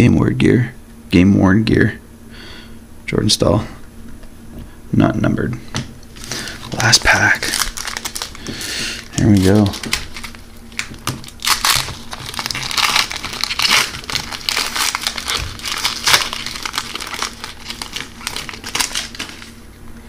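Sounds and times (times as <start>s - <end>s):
foil wrapper crinkling and tearing: 6.2s - 19.6s.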